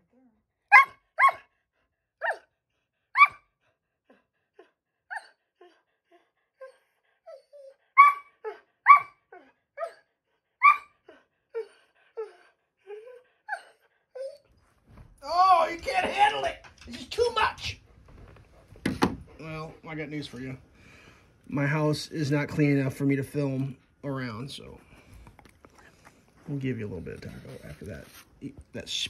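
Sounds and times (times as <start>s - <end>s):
dog barking: 0.7s - 1.5s, 8.0s - 9.2s.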